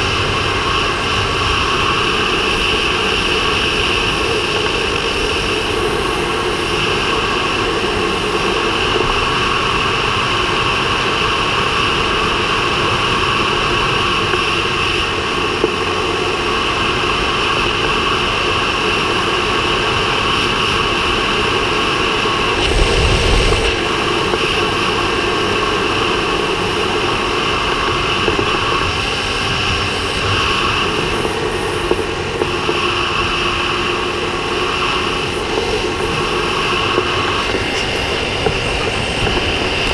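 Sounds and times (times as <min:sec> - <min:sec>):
road noise: 0:00.0 - 0:39.9
motorcycle engine cruising: 0:21.2 - 0:24.6
wind over microphone: 0:21.2 - 0:32.4, 0:35.1 - 0:39.9.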